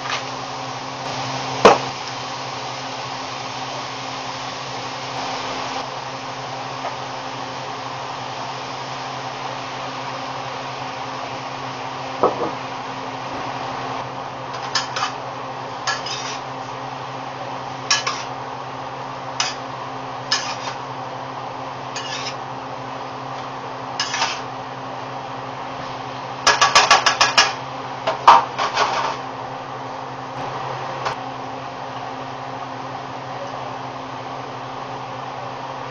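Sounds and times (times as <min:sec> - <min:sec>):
background hiss and hum: 0:00.0 - 0:35.9
metal spoon scraping a pan: 0:15.9 - 0:16.4, 0:17.9 - 0:18.3, 0:20.3 - 0:20.8, 0:22.0 - 0:22.4, 0:24.0 - 0:24.5.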